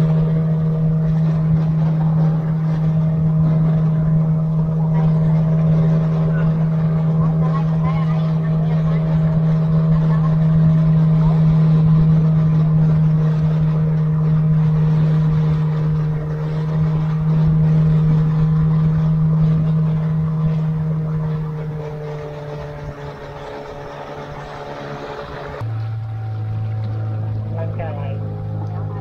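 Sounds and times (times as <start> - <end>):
motorboat engine running: 0.0 - 29.0
water rushing along hull: 0.0 - 29.0.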